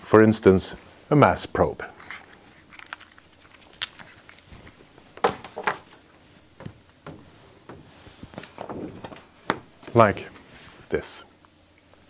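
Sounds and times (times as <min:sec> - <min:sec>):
clicks of plastic parts handled: 0:02.3 - 0:06.0
sharp knocks: 0:05.2 - 0:05.9, 0:06.6 - 0:10.0.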